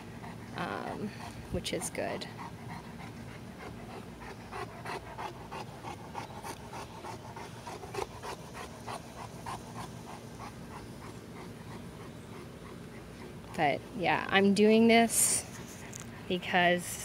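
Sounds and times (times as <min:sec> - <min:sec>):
dog panting: 0:00.0 - 0:16.3.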